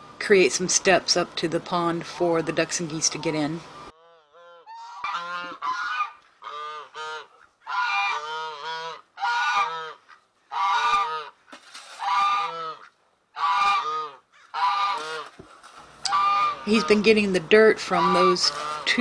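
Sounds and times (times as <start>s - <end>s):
geese honking: 0.8s - 19.0s.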